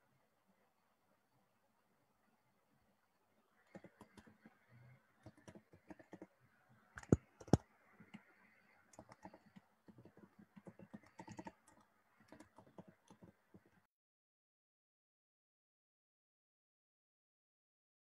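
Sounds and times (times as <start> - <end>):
computer keyboard typing: 3.6 - 4.6, 5.2 - 6.3, 7.0 - 13.8.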